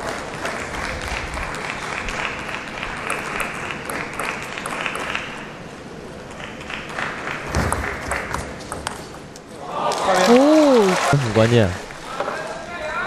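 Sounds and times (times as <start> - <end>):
crowd clapping and cheering: 0.0 - 5.5, 6.3 - 8.5, 9.8 - 12.1.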